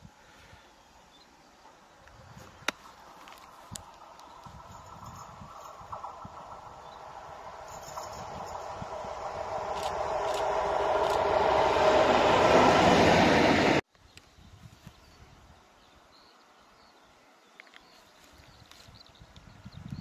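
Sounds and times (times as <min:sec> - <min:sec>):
diesel locomotive approaching: 0:01.6 - 0:13.8.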